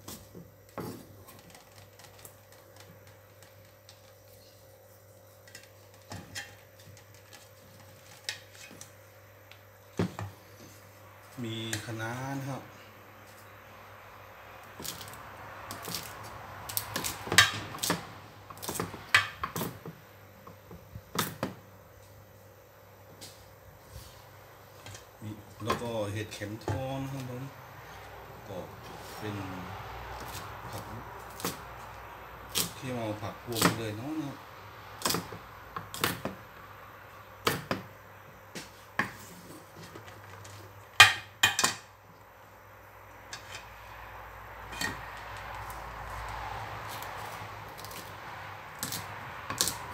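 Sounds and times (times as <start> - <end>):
knife chopping on wooden board: 30.2 - 31.6, 33.5 - 33.8, 35.0 - 36.4.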